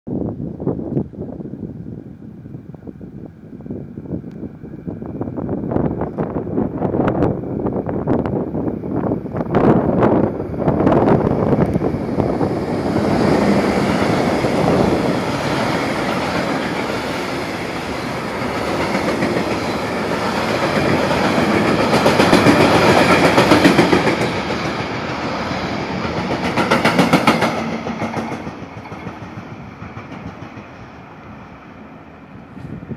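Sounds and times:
train wheels rumbling on rail: 0.8s - 32.9s
wheels clacking over rail joints: 11.5s - 31.0s.

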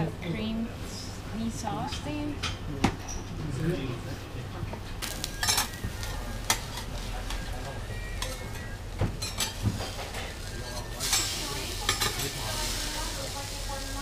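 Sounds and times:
metal spatulas scraping griddle: 9.2s - 12.8s
food sizzling on a griddle: 9.5s - 14.0s.

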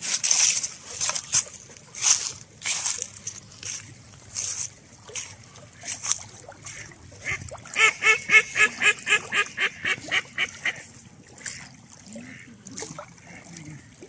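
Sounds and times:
duck quacking: 6.7s - 10.8s.

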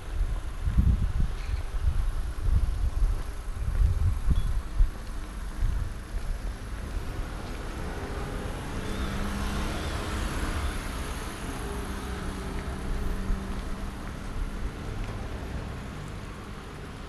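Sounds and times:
motor vehicle passing: 6.4s - 17.0s.

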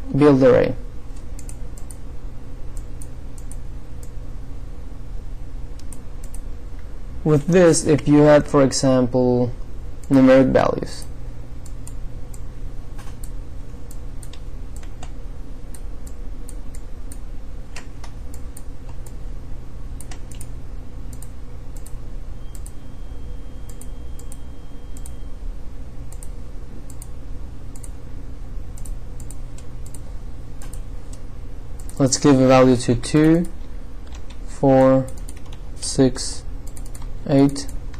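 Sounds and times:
steady low hum: 0.0s - 37.9s
computer mouse clicking: 1.1s - 2.0s, 2.7s - 4.2s, 5.8s - 6.5s, 11.0s - 19.2s, 20.0s - 20.5s, 21.1s - 22.8s, 26.1s - 27.1s, 27.7s - 28.0s, 28.8s - 30.0s, 30.6s - 32.0s, 33.1s - 34.4s, 35.0s - 35.6s, 36.6s - 37.8s
keyboard clicking: 35.0s - 35.6s, 36.6s - 37.8s.

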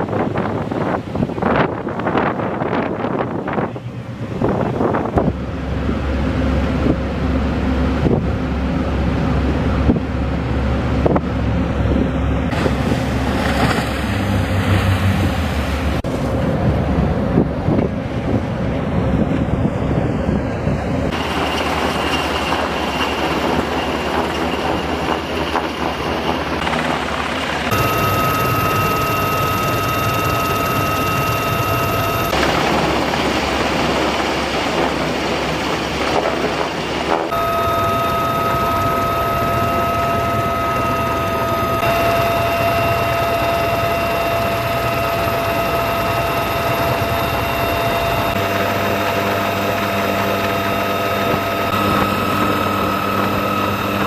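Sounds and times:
wind buffeting microphone: 0.0s - 27.8s
boat engines running: 0.0s - 54.0s
water rushing and spraying: 12.5s - 17.2s
high-pitched mechanical whine: 21.0s - 54.0s.

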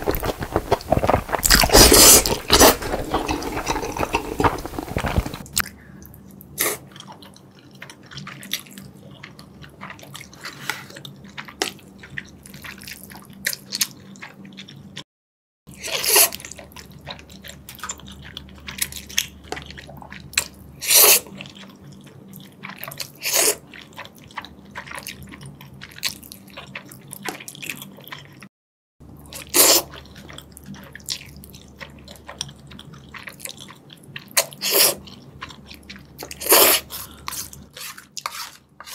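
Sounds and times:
noodle slurping: 0.0s - 5.6s, 29.4s - 31.0s, 34.4s - 35.1s, 35.7s - 38.9s
wet chewing and lip smacks: 0.0s - 15.0s, 21.3s - 28.5s, 29.3s - 38.8s.

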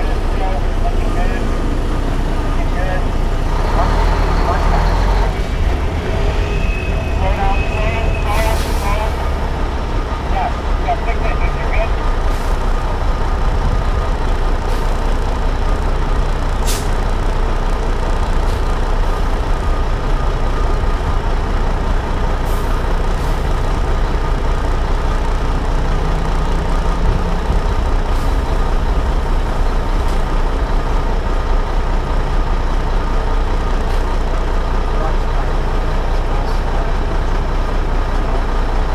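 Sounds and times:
road rumble: 0.0s - 38.9s
truck diesel engine running: 0.0s - 38.9s
air brake hisses: 16.6s - 17.0s.

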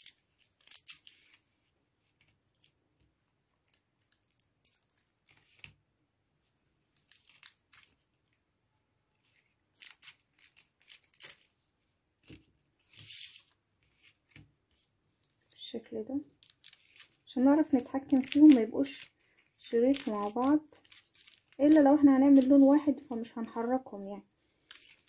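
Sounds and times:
sheet crinkling: 0.0s - 2.8s, 6.8s - 8.3s, 9.2s - 11.6s, 16.3s - 25.0s.

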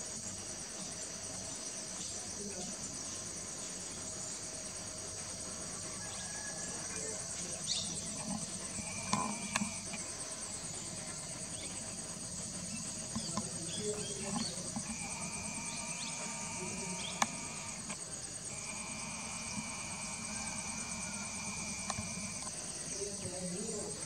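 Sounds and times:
insects trilling: 0.0s - 24.0s
high-pitched buzzing tone: 6.9s - 24.0s.

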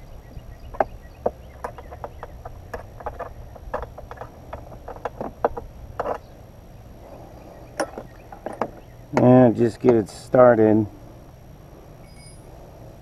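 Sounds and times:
low steady rumble: 0.0s - 13.0s
hardware clicking on hard plastic: 0.7s - 6.3s.

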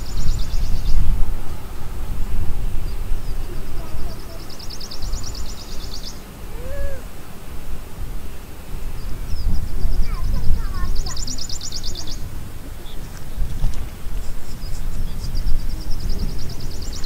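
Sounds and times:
low uneven rumble: 0.0s - 17.0s
rising and falling call: 4.4s - 7.2s.

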